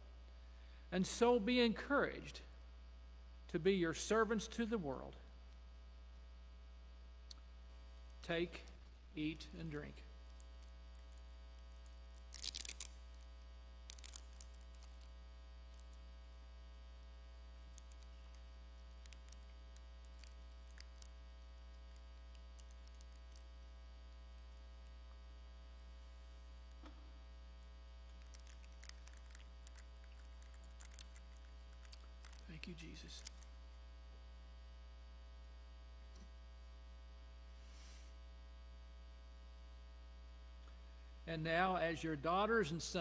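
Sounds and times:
electrical mains hum: 0:00.0 - 0:43.0.

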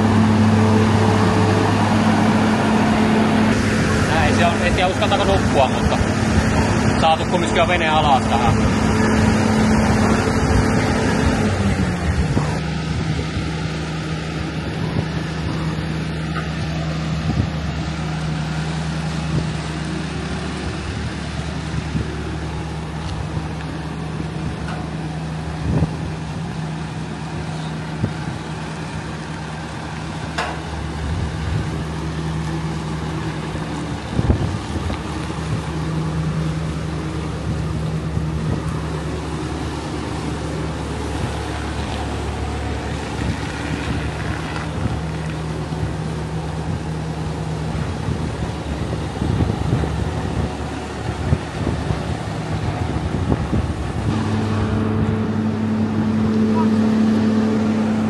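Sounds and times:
lift engine running: 0:00.0 - 0:58.0
clunks: 0:24.6 - 0:25.0, 0:30.2 - 0:31.0.

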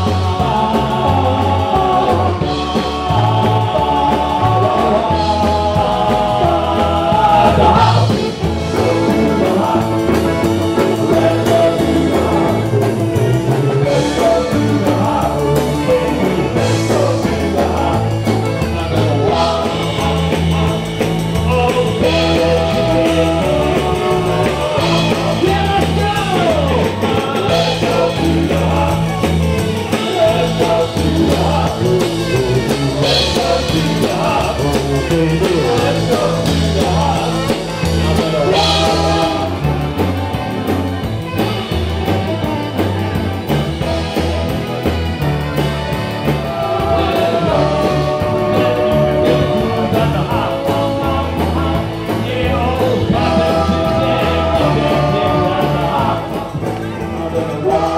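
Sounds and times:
person singing: 0:00.0 - 0:57.9
rock band playing: 0:00.0 - 0:57.9.

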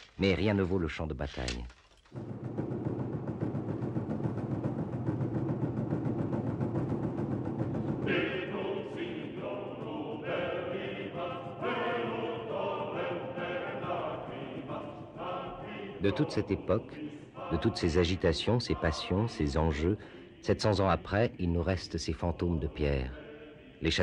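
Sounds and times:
low sustained choral music: 0:08.0 - 0:21.6, 0:22.4 - 0:24.0
voices singing held notes: 0:08.0 - 0:21.6, 0:22.4 - 0:24.0.

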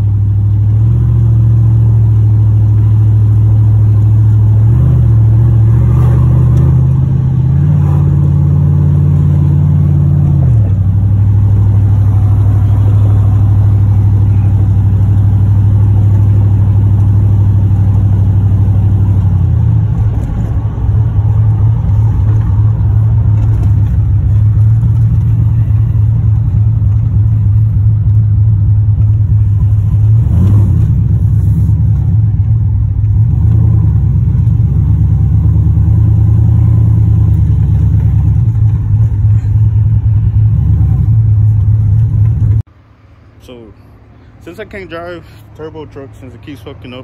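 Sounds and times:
truck engine drone from inside cab: 0:00.0 - 0:47.0.

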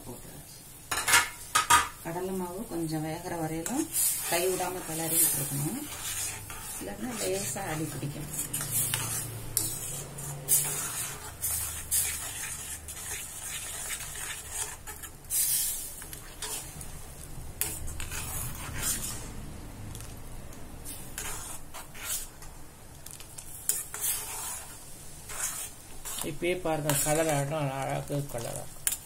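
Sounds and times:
ladle scraping a steel pan: 0:04.0 - 0:16.8, 0:17.6 - 0:19.3, 0:20.9 - 0:22.4, 0:23.7 - 0:26.3.

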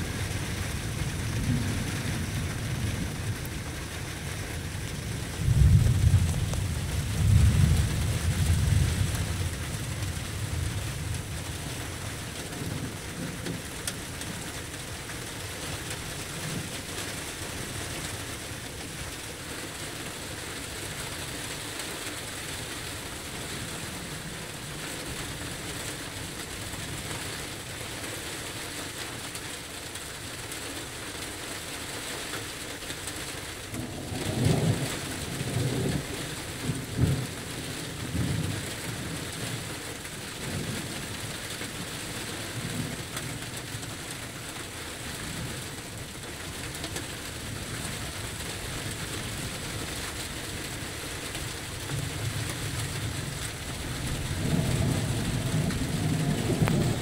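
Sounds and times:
thunder rumbling: 0:00.0 - 0:19.3, 0:33.7 - 0:39.8, 0:47.0 - 0:57.0
steady rain falling: 0:00.0 - 0:57.0.

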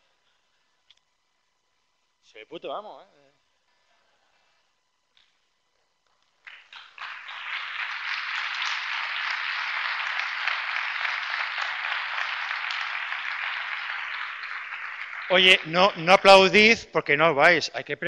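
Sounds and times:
audience applauding: 0:06.4 - 0:16.9.

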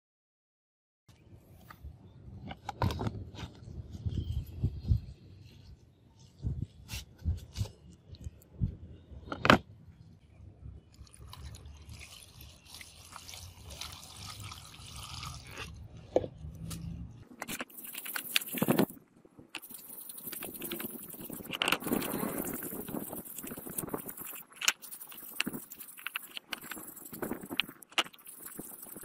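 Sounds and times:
water pouring and splashing on metal: 0:10.9 - 0:15.7.

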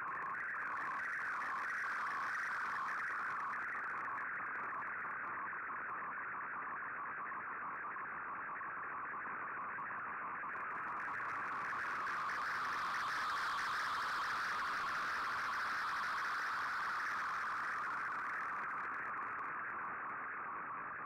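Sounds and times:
warbling digital radio tones: 0:10.9 - 0:19.5
radio hiss: 0:11.3 - 0:19.4.

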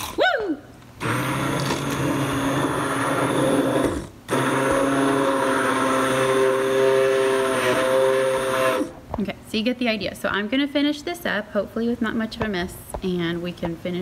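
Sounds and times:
immersion blender whirring: 0:01.0 - 0:09.0.

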